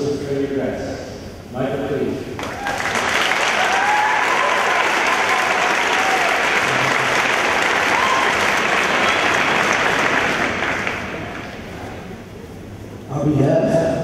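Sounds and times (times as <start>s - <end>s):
audience applauding: 2.4s - 12.2s.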